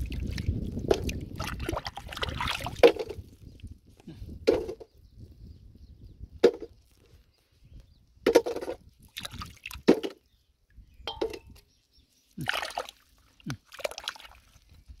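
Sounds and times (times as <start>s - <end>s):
hand squelching in mud and water: 0.0s - 3.8s, 9.0s - 10.2s, 12.2s - 15.0s.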